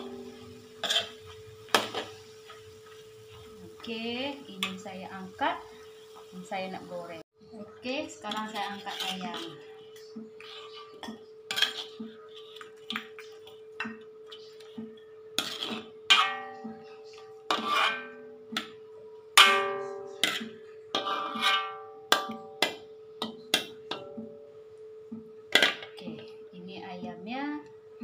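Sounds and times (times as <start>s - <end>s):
steady hum: 0.0s - 28.0s
metal ladle knocking on a wok: 19.4s - 24.4s.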